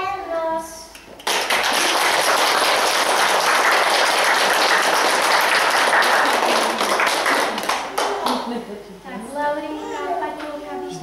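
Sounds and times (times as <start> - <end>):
audience applause: 1.2 - 8.5.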